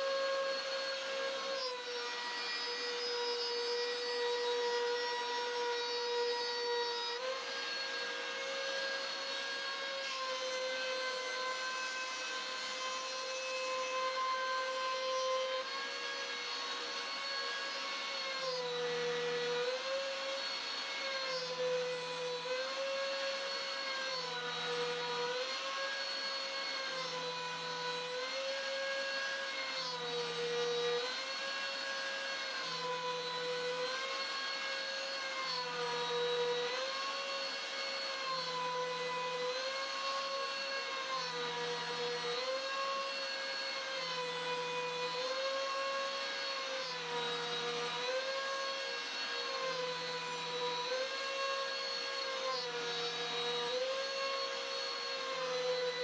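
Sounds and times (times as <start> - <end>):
router spindle cutting wood: 0.0 - 56.0.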